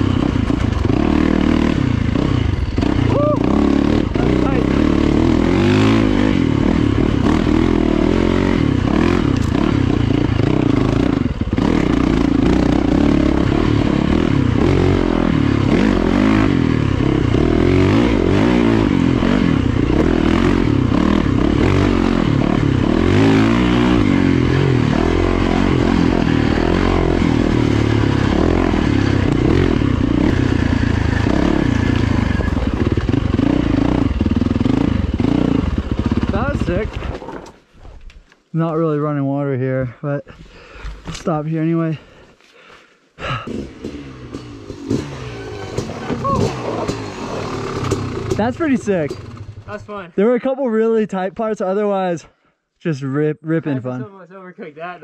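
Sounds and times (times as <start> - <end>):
dirt bike engine revving: 0.0 - 37.2, 43.2 - 50.0.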